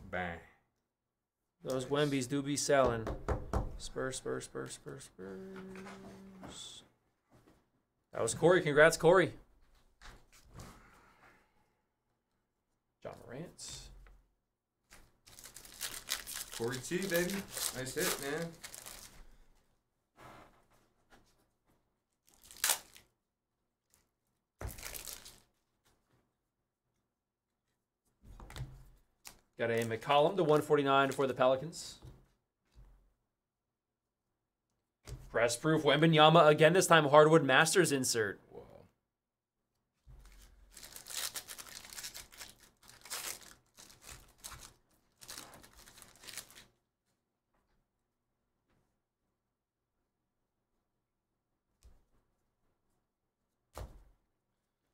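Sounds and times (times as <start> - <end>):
foil wrapper crinkling: 15.0 - 19.2, 22.2 - 23.1, 24.6 - 25.5, 40.2 - 46.7.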